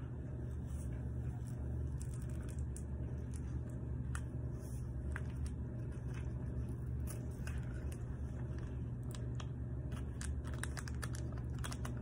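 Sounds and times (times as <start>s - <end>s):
low room hum: 0.0s - 12.0s
paper packet crinkling: 5.0s - 12.0s.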